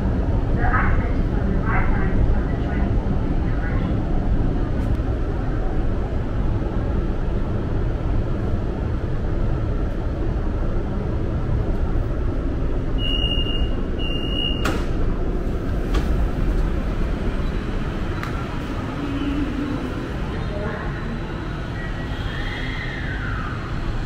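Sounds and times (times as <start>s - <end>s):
train car low rumble: 0.0s - 24.0s
door warning beeps: 13.0s - 14.8s.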